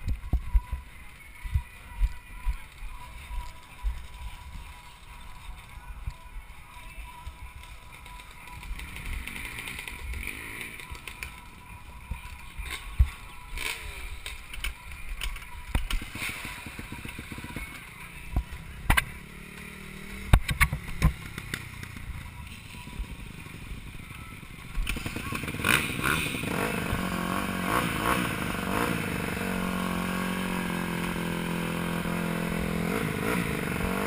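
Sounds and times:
dirt bike engines revving: 0.0s - 34.0s.

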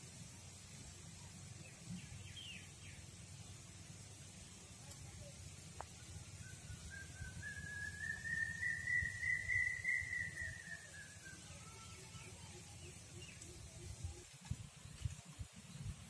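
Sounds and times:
gliding whistle-like tone: 6.4s - 11.5s.

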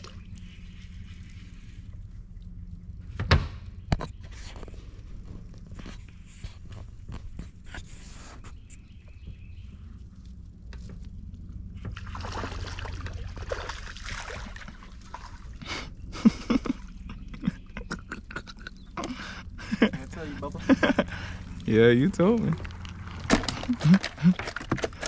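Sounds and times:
fish splashing at water surface: 12.0s - 15.6s.

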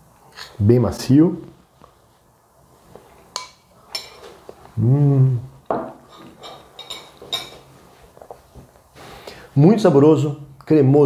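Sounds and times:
person humming mmm: 4.8s - 5.5s
spoon clinking on ceramic plate: 5.8s - 7.7s.

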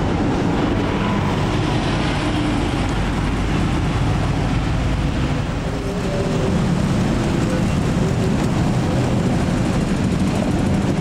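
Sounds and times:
electric train rumbling: 0.0s - 11.0s
motorcycles idling: 0.0s - 11.0s.

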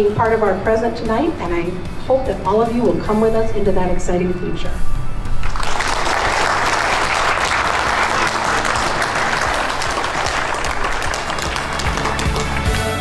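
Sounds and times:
crowd applauding: 5.4s - 13.0s.

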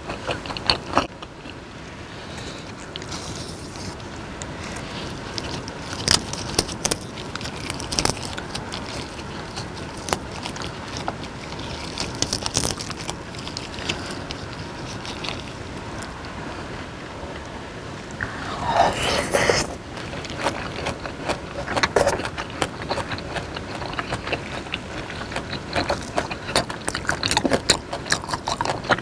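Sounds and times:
gloves and leaves rustling: 2.2s - 16.1s
steady hiss: 15.6s - 20.2s.

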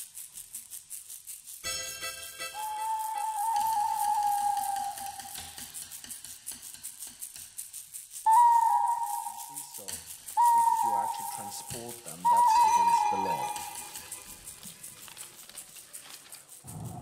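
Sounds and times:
quiet rattling ticks: 0.0s - 17.0s
high held synth tone: 1.6s - 5.4s, 12.3s - 14.2s.

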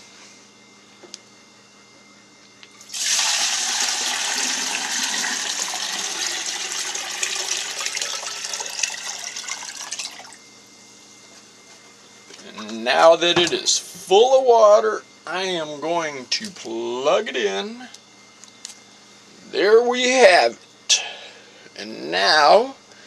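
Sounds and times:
water pouring into glass jar: 2.9s - 10.4s.

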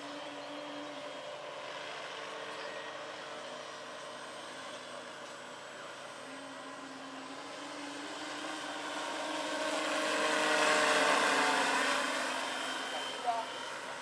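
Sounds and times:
model helicopter flying past: 6.3s - 14.0s.

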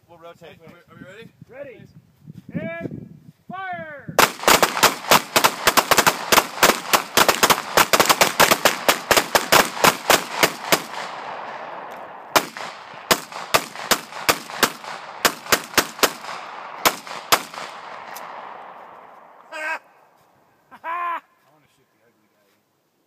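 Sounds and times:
pistol gunshots: 4.2s - 19.0s.

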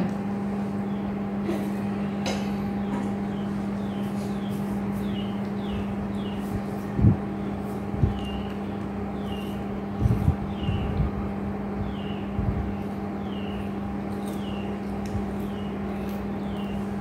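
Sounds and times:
steady low hum: 0.0s - 17.0s
small bird chirping: 2.8s - 11.1s, 11.8s - 17.0s.

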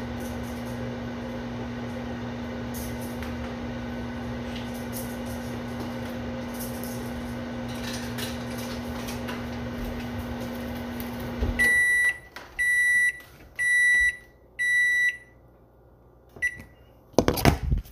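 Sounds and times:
microwave oven humming: 0.0s - 17.8s
microwave shutting off thud: 9.2s - 12.9s.

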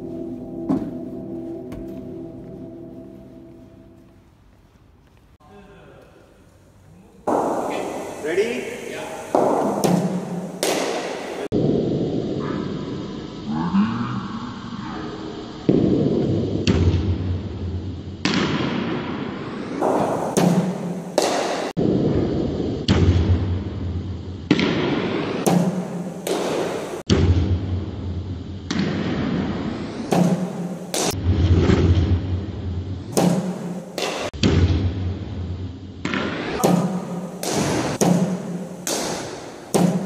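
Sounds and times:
bat hitting ball crack: 9.4s - 11.4s, 19.8s - 21.7s, 30.1s - 31.2s, 33.1s - 34.7s, 36.0s - 40.0s.

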